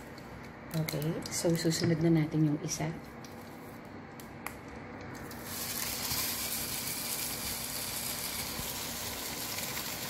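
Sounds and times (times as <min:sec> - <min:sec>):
meat sizzling in frying pan: 0:05.3 - 0:10.0.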